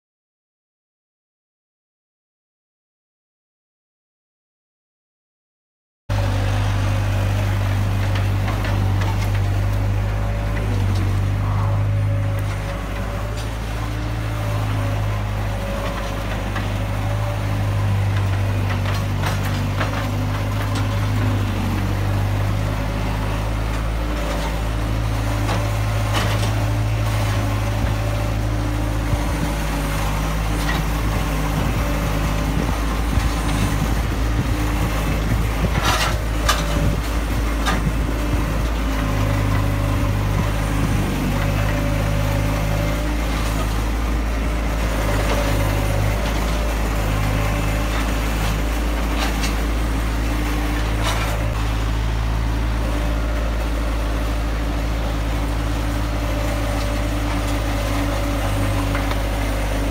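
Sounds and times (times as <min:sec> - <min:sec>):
loader engine running: 0:06.1 - 0:59.9
knocks and scrapes of concrete: 0:07.3 - 0:53.6.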